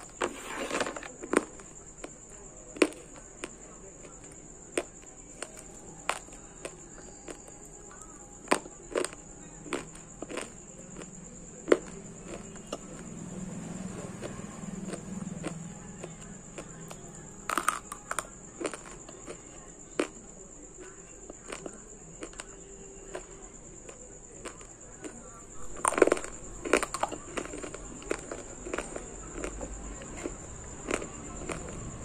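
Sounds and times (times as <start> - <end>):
crunching and chewing clay: 0.0 - 32.0.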